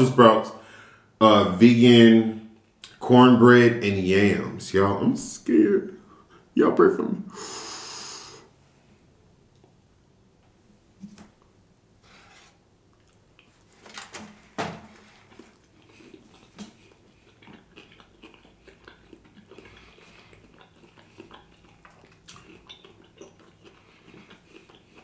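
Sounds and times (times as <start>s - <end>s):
chewing clicks and smacks: 15.2s - 25.0s.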